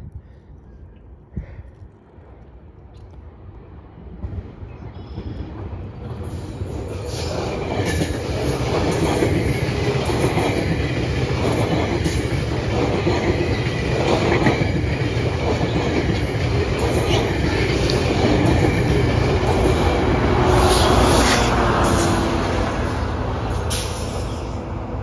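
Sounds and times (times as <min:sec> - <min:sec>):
train rumbling past: 0:03.7 - 0:25.0
wheels clacking over rail joints: 0:06.0 - 0:24.6.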